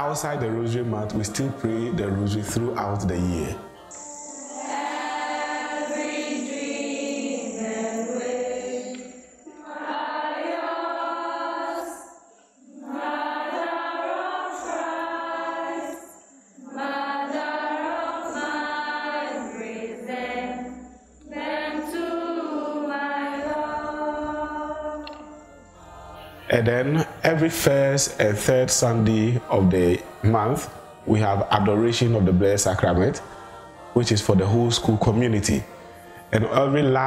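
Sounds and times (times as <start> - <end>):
girls chanting in unison: 3.9 - 25.0.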